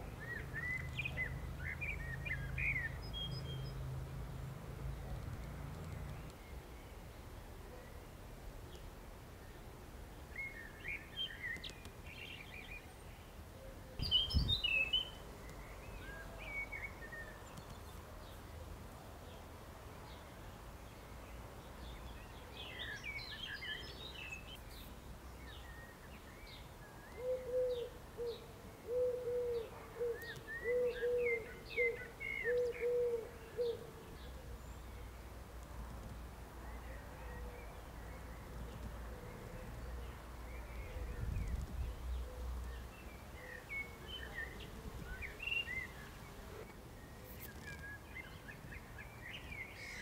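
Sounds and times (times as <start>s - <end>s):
songbirds chirping: 0.0s - 50.0s
pigeon cooing: 27.2s - 33.9s.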